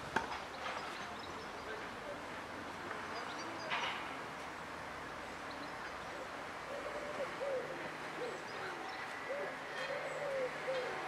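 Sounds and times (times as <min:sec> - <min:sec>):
bird cooing: 0:06.1 - 0:11.0.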